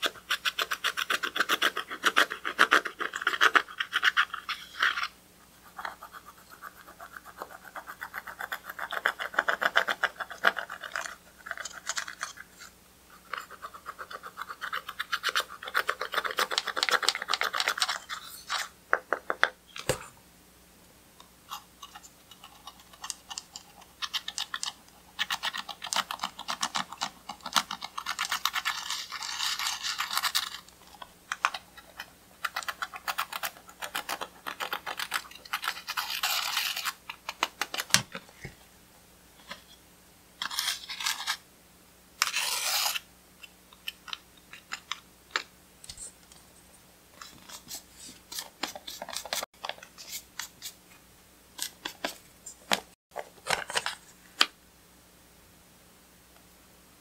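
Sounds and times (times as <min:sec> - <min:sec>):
tool scratching eyeshadow: 0:00.0 - 0:12.5, 0:21.5 - 0:30.7, 0:31.4 - 0:37.4, 0:42.2 - 0:43.0.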